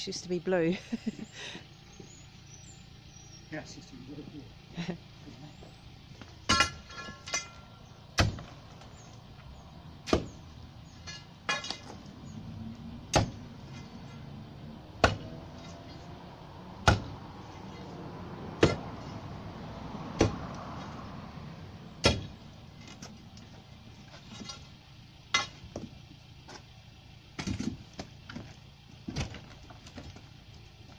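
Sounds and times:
steel bar striking concrete: 0:06.5 - 0:08.4, 0:25.3 - 0:25.6.

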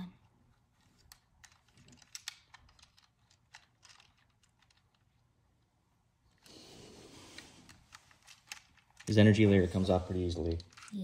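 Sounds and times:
small plastic clicks: 0:00.8 - 0:05.2.

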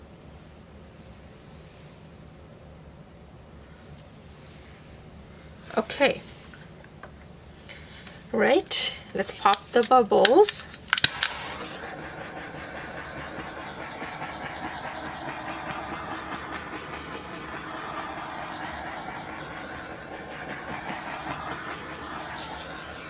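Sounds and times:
torch flame hissing: 0:11.0 - 0:23.0.

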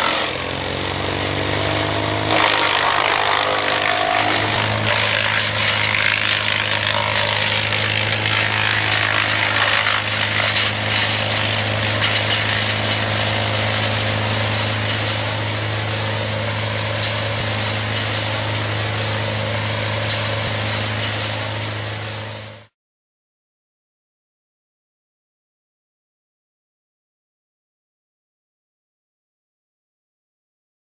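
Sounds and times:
chipper chipping brush: 0:00.0 - 0:22.6
brush chipper running: 0:00.0 - 0:22.7.

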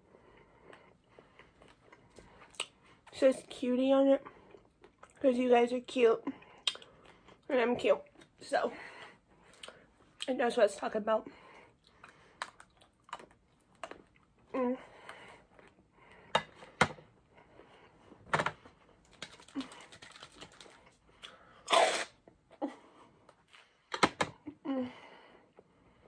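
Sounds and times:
crunchy biting and chewing: 0:21.2 - 0:22.2.

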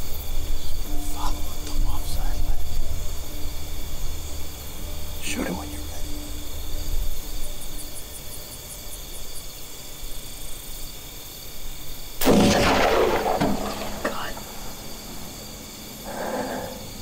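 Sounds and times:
gunshot echoing: 0:12.2 - 0:15.6.

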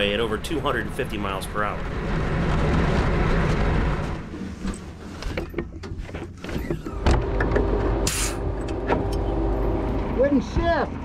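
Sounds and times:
short hiss: 0:08.1 - 0:08.4.

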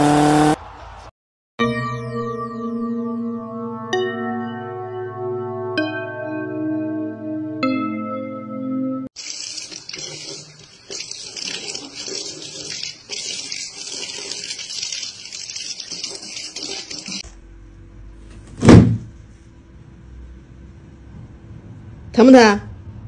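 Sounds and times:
faucet water running into sink: 0:09.1 - 0:17.2
loud thump: 0:18.4 - 0:19.2.

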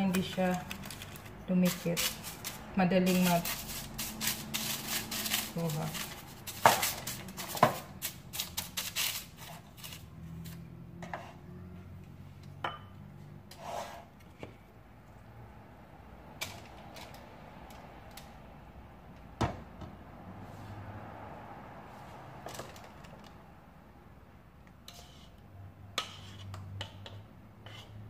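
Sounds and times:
parchment paper crinkling: 0:00.0 - 0:10.6.

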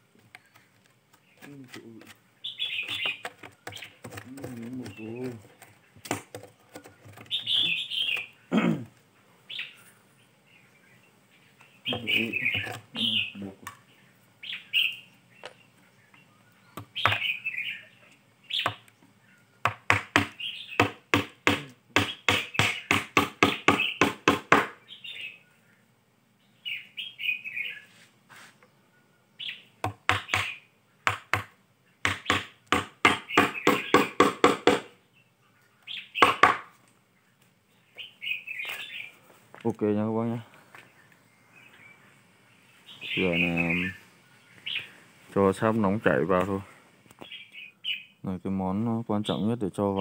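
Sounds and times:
birds chirping: 0:00.0 - 0:50.0
hammer knocking on wooden lid: 0:19.6 - 0:24.8, 0:31.1 - 0:34.9.

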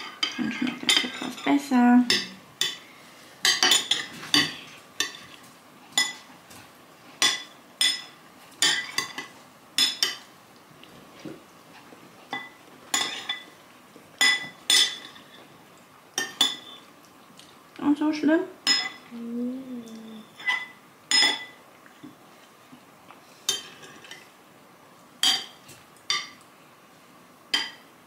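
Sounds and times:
spoons clinking on ceramic bowls: 0:03.4 - 0:05.3, 0:12.3 - 0:13.6, 0:14.2 - 0:15.4, 0:16.2 - 0:16.8, 0:18.6 - 0:19.0, 0:25.2 - 0:26.4, 0:27.6 - 0:27.8.

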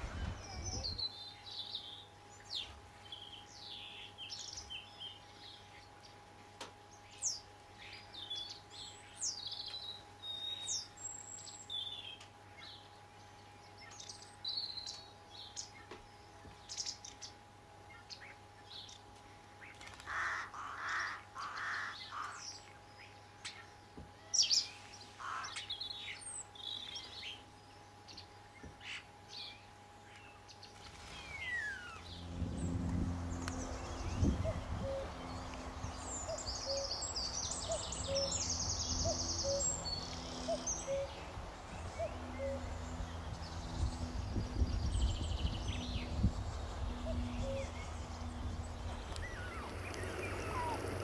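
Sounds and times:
starlings calling: 0:19.6 - 0:27.4, 0:28.1 - 0:51.0
low bird call: 0:31.1 - 0:42.8, 0:46.8 - 0:51.0.

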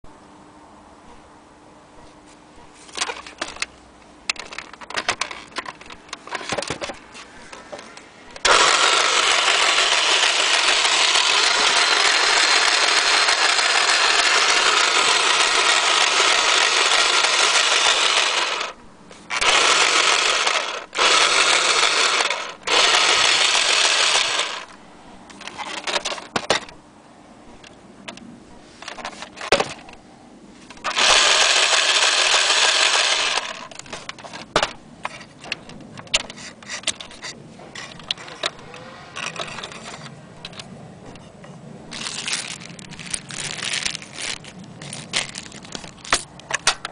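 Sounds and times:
toy sewing machine running: 0:08.4 - 0:24.7, 0:30.8 - 0:33.7.

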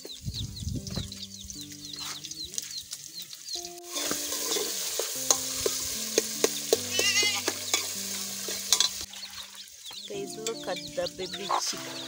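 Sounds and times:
chick peeping: 0:00.0 - 0:03.8, 0:09.0 - 0:12.0
vegetables sizzling in hot oil: 0:02.6 - 0:10.9.

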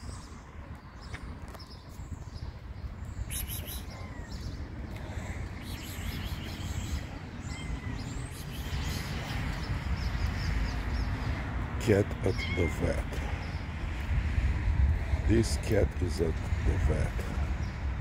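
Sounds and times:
small birds chirping: 0:00.0 - 0:14.0.

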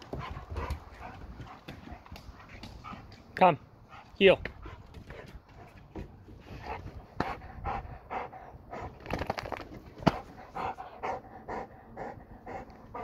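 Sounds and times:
dog panting hard: 0:00.0 - 0:09.0, 0:10.1 - 0:13.0.

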